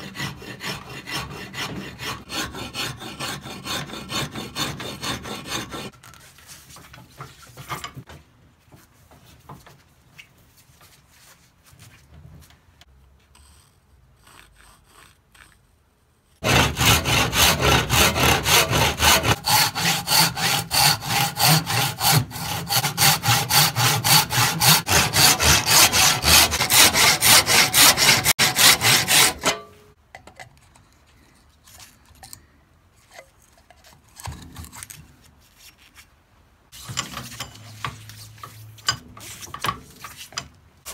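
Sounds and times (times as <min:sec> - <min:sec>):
hand saw cutting wood: 0:00.0 - 0:05.9, 0:16.4 - 0:29.7, 0:39.2 - 0:40.9
faint handling sounds: 0:05.9 - 0:13.5.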